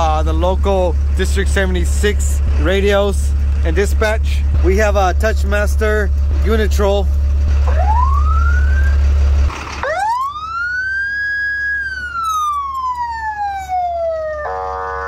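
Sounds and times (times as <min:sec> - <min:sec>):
electronic police siren wailing: 0:07.6 - 0:09.1, 0:09.8 - 0:15.0.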